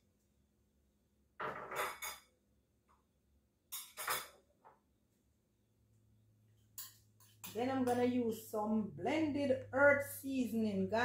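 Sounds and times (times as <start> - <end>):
spoon and containers clinking: 3.7 - 4.4, 6.7 - 8.2.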